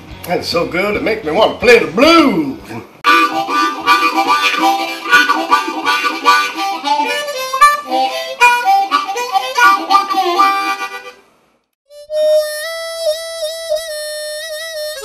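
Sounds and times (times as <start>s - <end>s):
blues harmonica riff: 3.0s - 11.3s, 11.9s - 15.0s.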